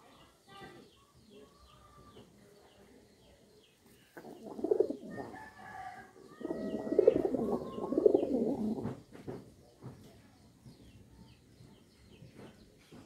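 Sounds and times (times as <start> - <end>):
small birds chirping: 0.0 - 13.0
pigeons cooing: 4.1 - 9.0.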